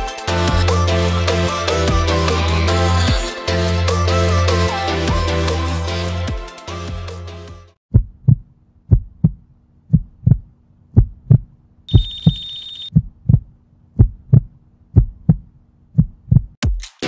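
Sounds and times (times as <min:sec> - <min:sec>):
heartbeat thumps: 0:07.9 - 0:16.6.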